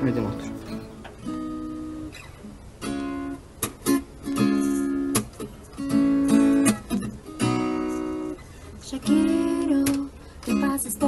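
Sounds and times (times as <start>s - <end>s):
acoustic guitar strumming chords: 0.0s - 8.4s.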